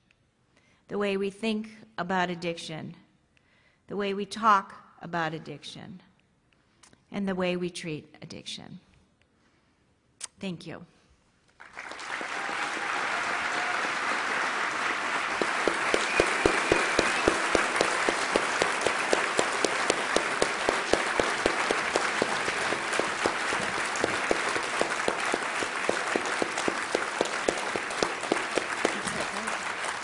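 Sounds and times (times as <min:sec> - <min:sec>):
audience applauding: 0:11.6 - 0:30.0
sharp nearby claps: 0:11.6 - 0:30.0.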